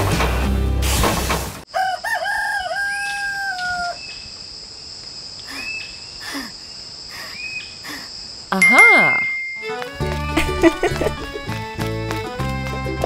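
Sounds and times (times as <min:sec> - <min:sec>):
rooster crowing: 0:01.7 - 0:04.1
background music: 0:08.6 - 0:13.0.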